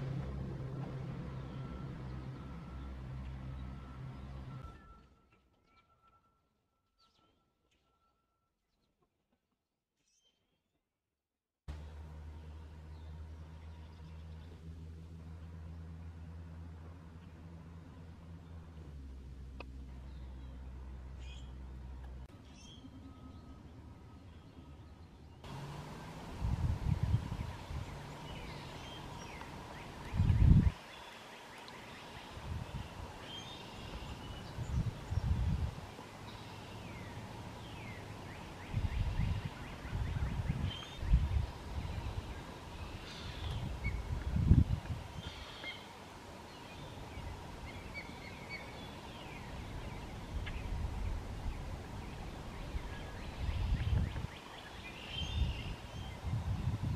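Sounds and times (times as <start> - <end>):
low rumble: 0.0 - 4.7, 11.7 - 30.8, 46.9 - 54.3
small birds chirping: 19.5 - 26.0, 26.8 - 56.8.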